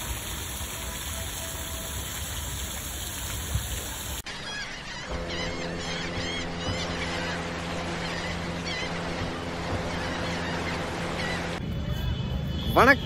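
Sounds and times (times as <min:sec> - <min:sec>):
fountain water splashing: 0:00.0 - 0:04.3
birds calling: 0:04.2 - 0:11.6.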